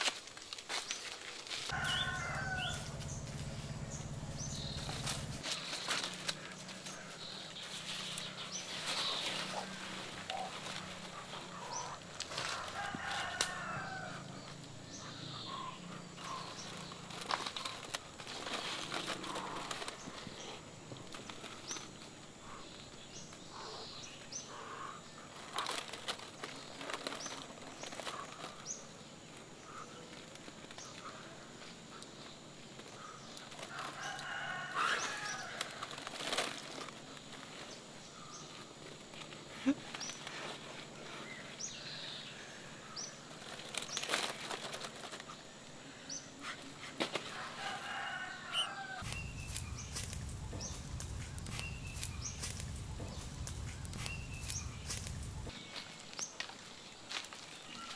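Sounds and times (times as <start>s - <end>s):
birds flapping wings: 1.6s - 13.6s, 16.2s - 22.1s, 49.0s - 55.5s
sharp taps and rustles: 49.0s - 55.6s.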